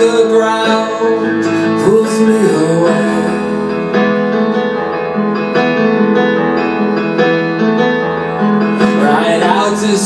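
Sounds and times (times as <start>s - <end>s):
sustained piano chords: 0.0s - 10.0s.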